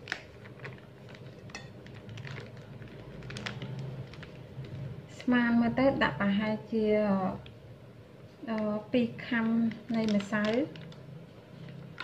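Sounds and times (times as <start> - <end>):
plastic bag crinkling: 0.0 - 5.0, 9.3 - 12.0.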